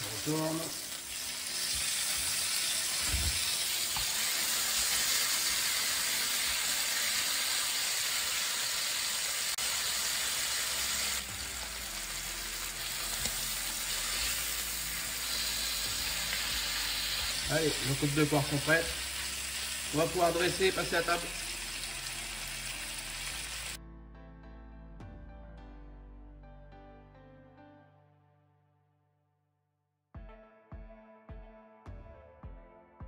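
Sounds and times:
meat sizzling in a frying pan: 0.0s - 23.8s.

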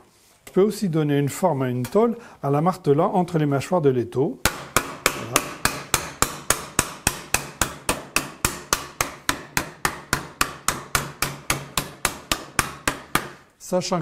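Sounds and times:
hammer striking sheet metal: 4.4s - 13.5s.

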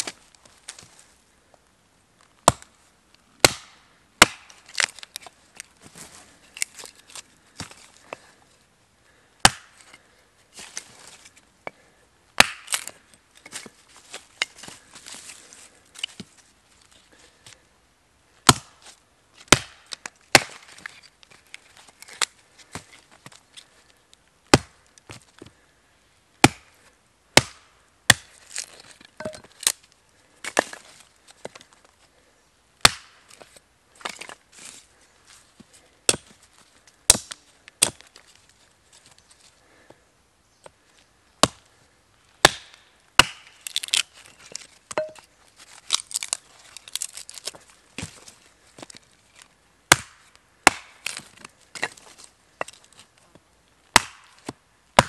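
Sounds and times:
hatchet chopping wood: 2.4s - 2.7s, 3.4s - 5.0s, 9.4s - 9.8s, 12.4s - 13.0s, 18.4s - 18.8s, 19.4s - 20.7s, 24.5s - 24.8s, 26.4s - 26.8s, 27.4s - 28.3s, 32.8s - 33.2s, 36.1s - 36.3s, 37.1s - 38.0s, 41.4s - 41.6s, 42.4s - 44.0s, 49.9s - 51.2s, 53.9s - 55.0s
wood cracking and splintering: 45.6s - 48.2s.

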